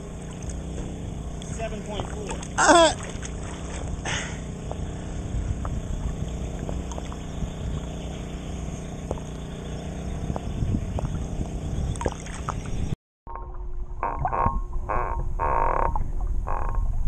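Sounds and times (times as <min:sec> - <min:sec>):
small waves lapping and sloshing: 0:00.0 - 0:05.2
low hum: 0:00.0 - 0:17.0.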